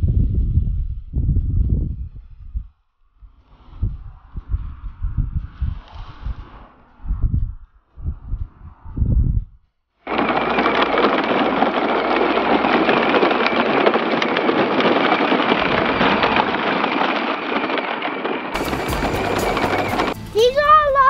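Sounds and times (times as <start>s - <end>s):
plastic wheels crunching on gravel: 10.1s - 21.0s
electric motor whine: 18.6s - 20.2s.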